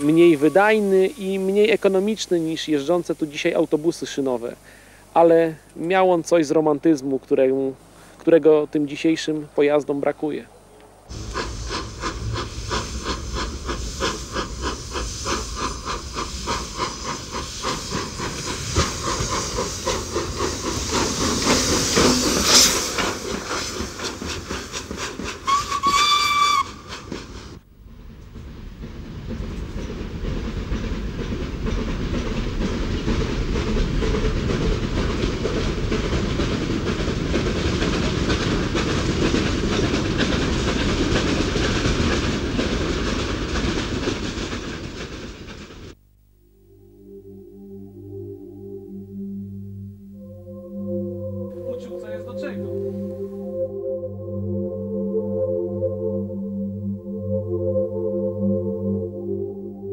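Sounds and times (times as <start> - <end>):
hissing steam: 0.0 - 5.7, 11.1 - 27.6, 28.5 - 46.0
steam locomotive exhaust beats: 0.0 - 5.9, 11.1 - 46.0, 46.8 - 55.1
steam train rumbling: 0.0 - 10.4, 11.0 - 46.0, 50.1 - 54.2
steam whistle blast: 25.4 - 27.0.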